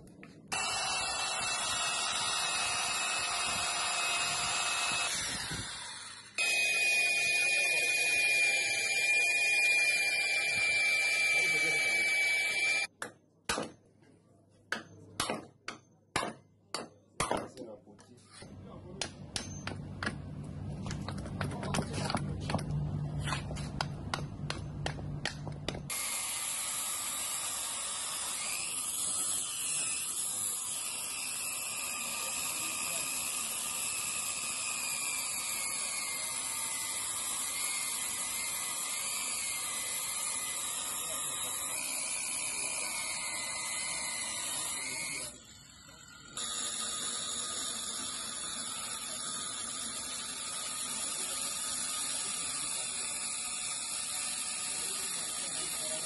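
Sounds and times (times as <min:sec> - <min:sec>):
angle grinder cutting steel: 0:00.5 - 0:12.9, 0:25.9 - 0:56.0.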